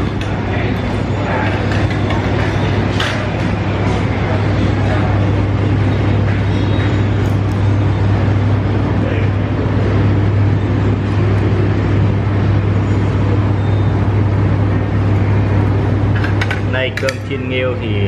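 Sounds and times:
faint voices: 0.0s - 11.1s
steady low hum: 0.0s - 18.0s.

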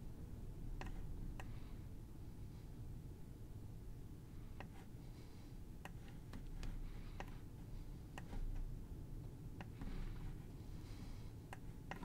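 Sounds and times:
low steady hum: 0.0s - 12.0s
mouse and keyboard clicks: 11.5s - 12.0s.

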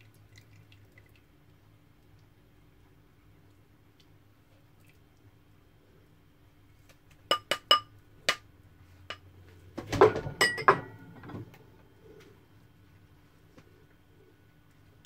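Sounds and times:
spoon clinking on pot: 7.3s - 7.9s, 10.4s - 10.9s
dishes clattering: 9.9s - 11.4s.

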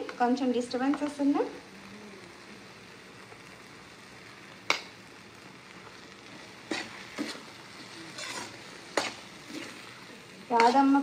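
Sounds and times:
curry sizzling in a pan: 0.0s - 11.0s
spatula scraping pan: 6.5s - 11.0s.

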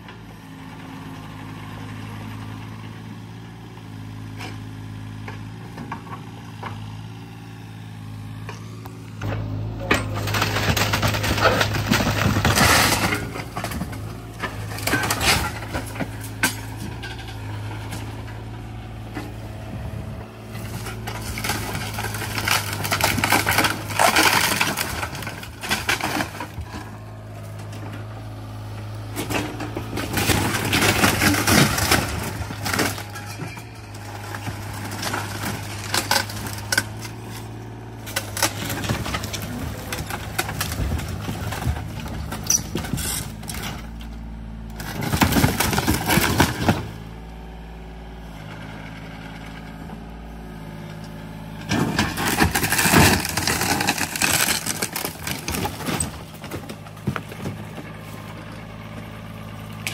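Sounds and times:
excavator diesel engine running: 0.0s - 59.9s
wooden wall cracking and crashing: 9.9s - 18.2s, 20.6s - 26.8s, 29.2s - 44.0s, 44.7s - 47.1s, 51.6s - 59.9s.

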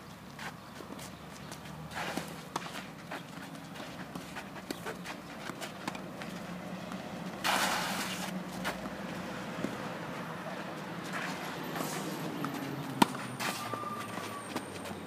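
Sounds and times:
footsteps on clay: 0.3s - 15.0s
racket striking ball: 11.0s - 14.2s.

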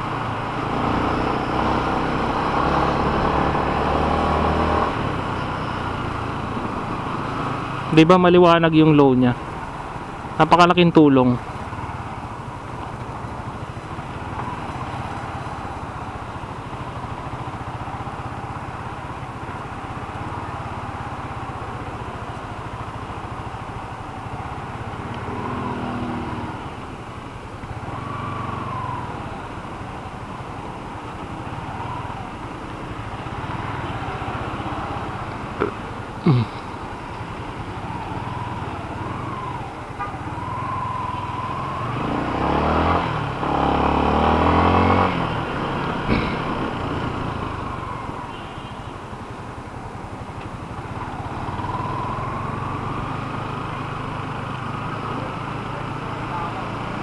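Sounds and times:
road noise: 0.0s - 57.0s
motorcycle engine running: 27.1s - 57.0s.

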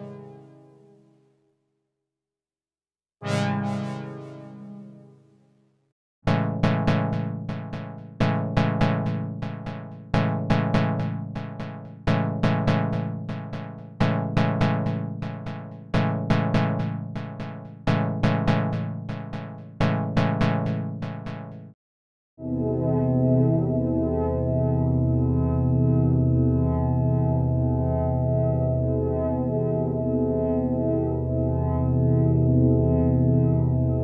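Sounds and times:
synthesizer chord stabs: 6.3s - 21.7s.

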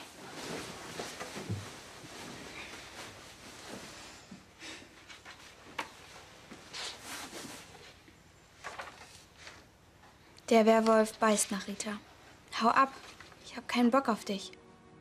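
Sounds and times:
notebook pages rustling: 8.6s - 9.7s.

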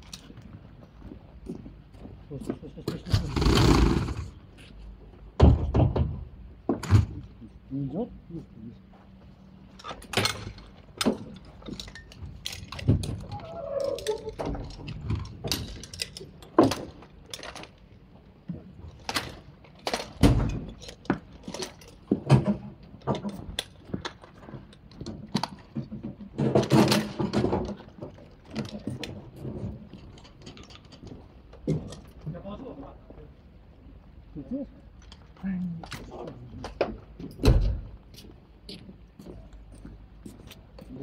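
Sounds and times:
metal clanks and jingling: 9.8s - 13.1s.

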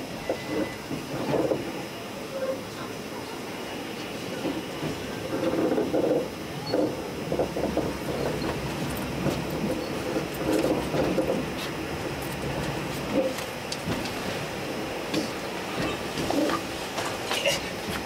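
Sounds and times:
train carriage rumble: 0.0s - 18.0s
wheels clacking over rails: 4.4s - 14.4s.

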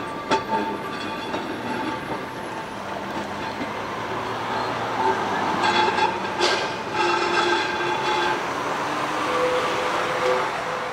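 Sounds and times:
tram wheels on rails: 0.0s - 10.9s.

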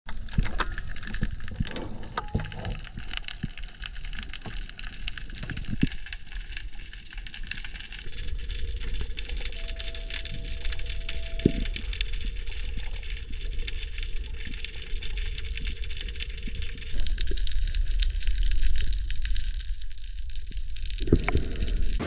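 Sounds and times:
crackling clicks: 0.1s - 22.0s
low underwater rumble: 0.2s - 22.0s
faint steady tone: 9.4s - 12.3s.

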